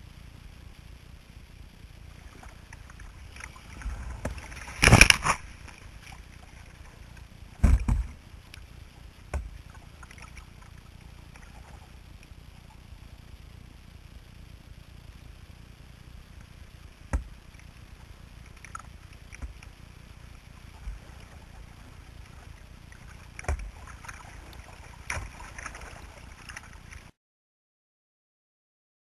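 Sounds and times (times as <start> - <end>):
water rumbling against boat: 1.3 - 27.2
water splashes: 2.0 - 13.7, 16.9 - 27.2.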